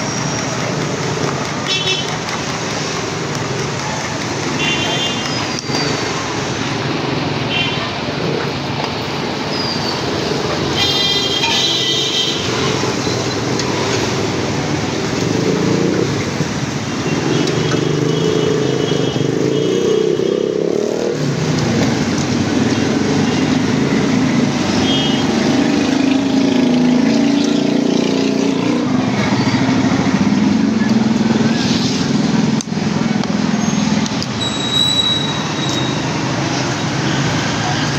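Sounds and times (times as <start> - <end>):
street traffic: 0.0 - 37.9
motorbike and car engines passing: 12.5 - 34.4.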